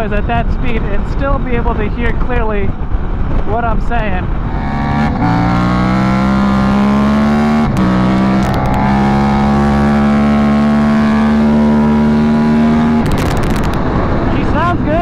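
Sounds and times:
wind noise: 0:00.0 - 0:15.0
motorcycle engine at high revs: 0:04.2 - 0:15.0.

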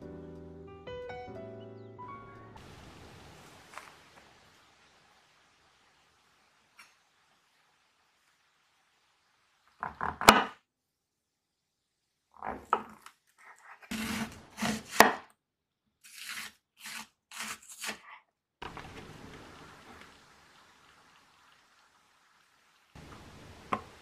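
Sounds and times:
soft steady hiss: 0:02.6 - 0:10.0, 0:18.6 - 0:24.0
knife slicing on cutting board: 0:12.5 - 0:15.2, 0:16.0 - 0:18.0.

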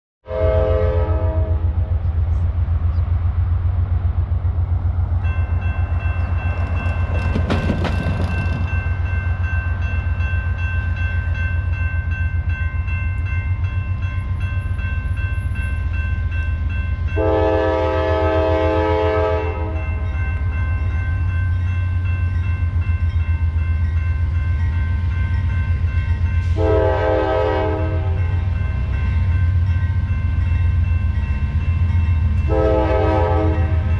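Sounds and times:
train air horn: 0:00.2 - 0:02.4, 0:17.1 - 0:20.0, 0:26.4 - 0:28.4, 0:32.4 - 0:33.9
diesel locomotive engines rumbling: 0:00.2 - 0:33.9.

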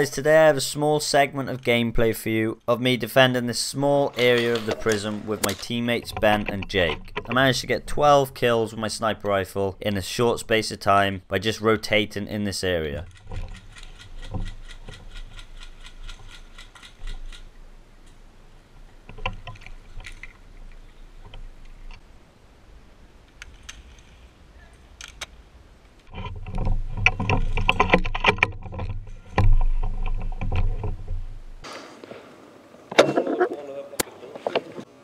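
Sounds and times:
rifle gear rustling and knocking: 0:03.9 - 0:08.1, 0:13.0 - 0:18.2, 0:19.0 - 0:22.0, 0:25.0 - 0:31.6
rapid ticking rattle: 0:13.0 - 0:17.6.

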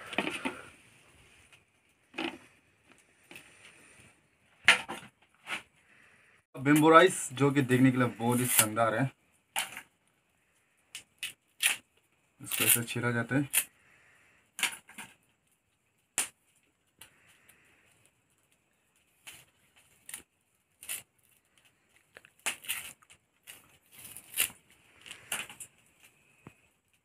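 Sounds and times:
bamboo cracking and tearing: 0:10.9 - 0:13.7, 0:18.4 - 0:27.0.

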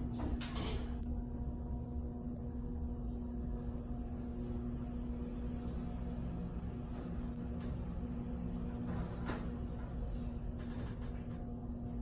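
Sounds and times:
elevator hum with low rumble: 0:00.0 - 0:12.0.

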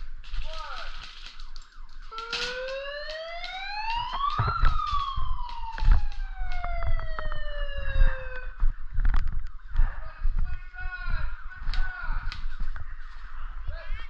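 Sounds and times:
sharp clicks: 0:00.3 - 0:08.5
siren winding up and down: 0:01.2 - 0:08.6.

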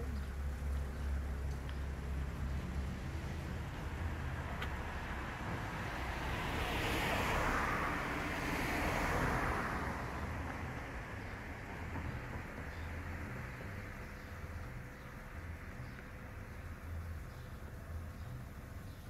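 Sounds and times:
road vehicle passing by: 0:00.0 - 0:19.0.

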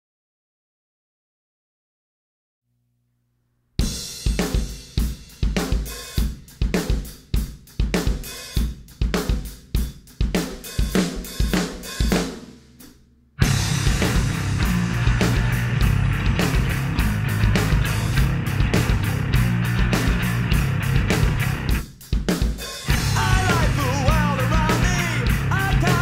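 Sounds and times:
rock drum beat: 0:03.8 - 0:26.0
full rock band playing loud: 0:13.4 - 0:22.0, 0:22.6 - 0:26.0.

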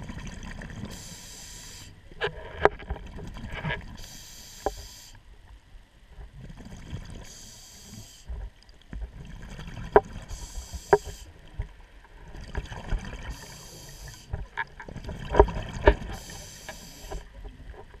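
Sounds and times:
underwater bubbling: 0:00.0 - 0:18.0
regulator breathing hiss: 0:00.9 - 0:02.0, 0:04.0 - 0:05.2, 0:07.2 - 0:08.3, 0:10.3 - 0:11.4, 0:13.3 - 0:14.4, 0:16.2 - 0:17.3.

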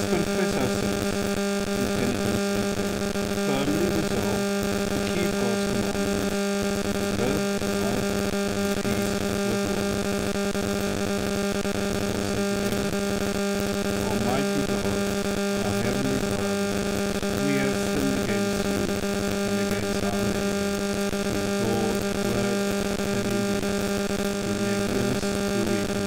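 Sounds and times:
man reading aloud: 0:00.0 - 0:01.0, 0:01.8 - 0:02.9, 0:03.5 - 0:06.2, 0:07.2 - 0:08.1, 0:08.8 - 0:09.9, 0:12.1 - 0:13.0, 0:14.0 - 0:16.5, 0:17.4 - 0:20.4, 0:21.3 - 0:23.6, 0:24.5 - 0:25.9
buzzy electrical hum: 0:00.0 - 0:26.0.

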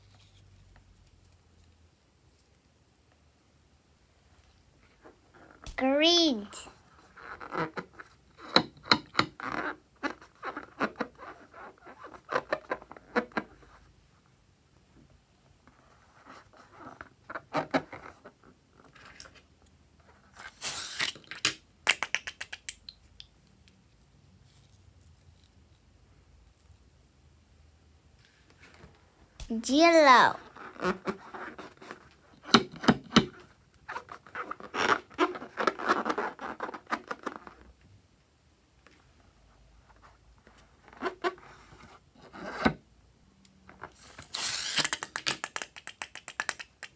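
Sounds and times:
hands rubbing a balloon: 0:33.9 - 0:37.7.

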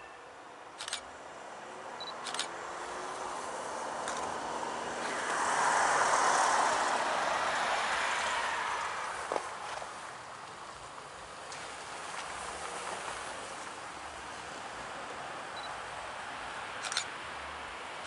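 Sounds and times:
rushing vehicle noise: 0:00.5 - 0:18.0.

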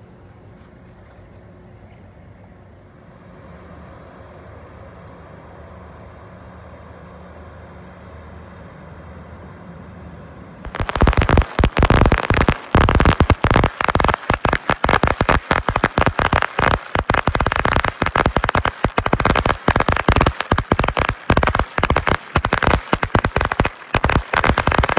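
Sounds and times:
firecrackers crackling: 0:10.6 - 0:24.9.

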